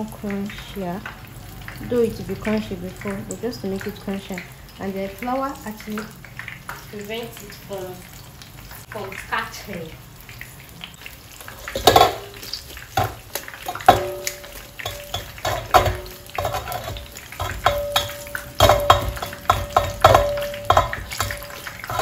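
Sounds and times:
colander shaken in metal sink: 11.5 - 22.0
metal ringing: 13.7 - 22.0.

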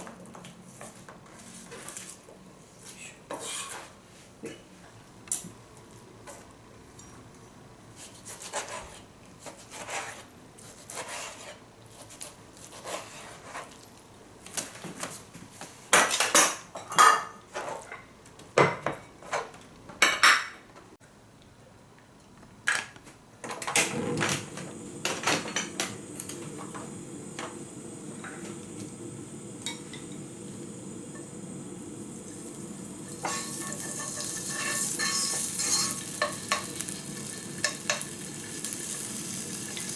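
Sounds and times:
dishes and utensils clinking: 23.6 - 26.0, 29.6 - 30.3, 33.1 - 36.9
stove hissing: 23.7 - 39.9
pork sizzling in frying pan: 24.5 - 39.9.

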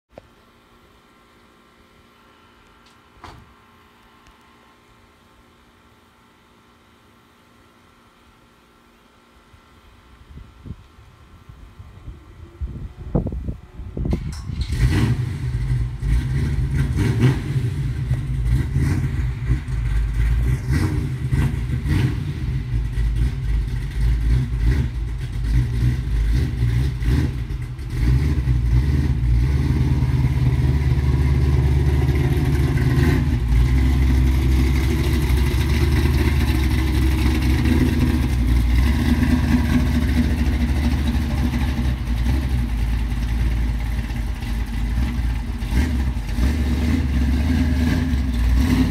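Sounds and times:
big engine rumbling and revving: 12.3 - 48.9.

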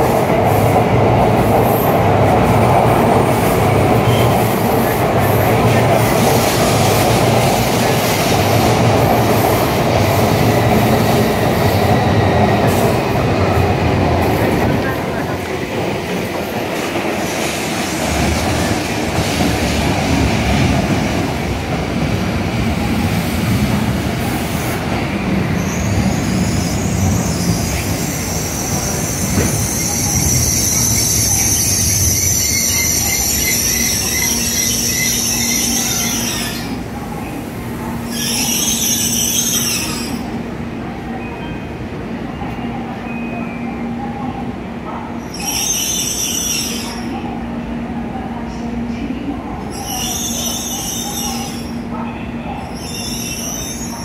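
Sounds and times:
train wheels rumbling on rails: 0.0 - 43.0
high-pitched brake squeal: 25.6 - 36.8, 38.1 - 40.3, 45.3 - 47.1, 49.7 - 51.7, 52.6 - 54.0.

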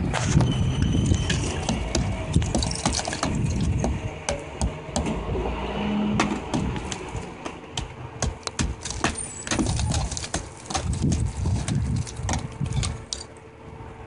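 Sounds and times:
hammer cracking ice: 8.2 - 13.3.

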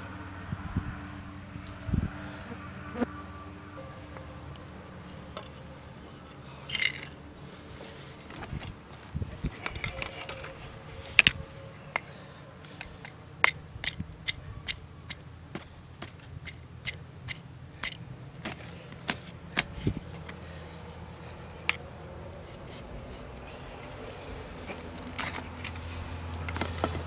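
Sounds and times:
metal tool scraping stony soil: 22.4 - 27.0.

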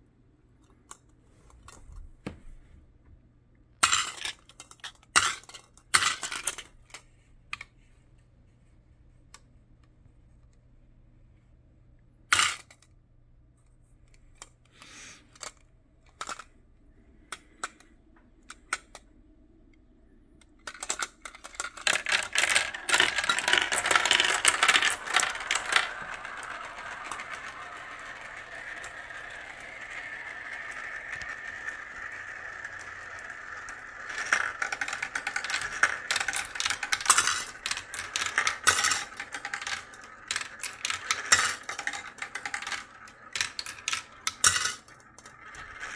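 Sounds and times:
marbles clattering in plastic run: 3.8 - 6.8, 20.7 - 45.9.

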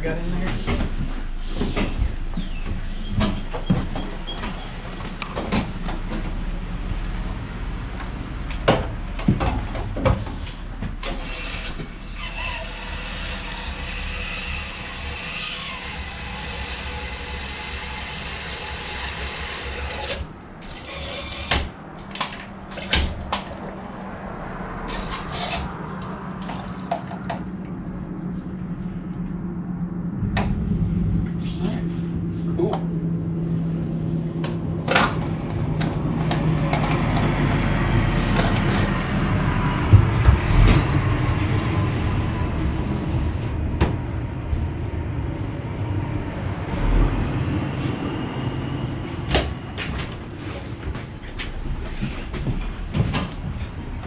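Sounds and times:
steady low hum: 21.7 - 54.0.

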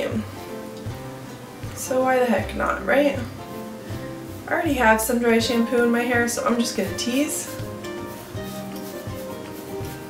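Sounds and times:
soft background music: 0.0 - 10.0.

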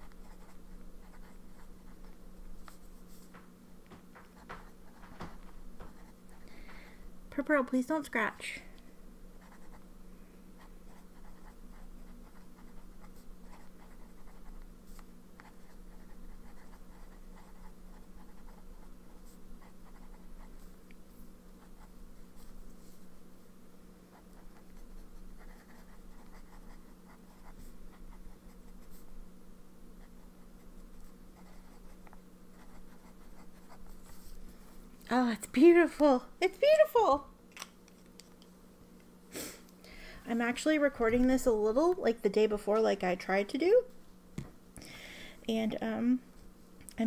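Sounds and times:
pen nib scratching on paper: 0.0 - 3.3, 10.6 - 20.8, 24.2 - 29.1, 30.0 - 34.4
steady low hum: 0.0 - 47.0.

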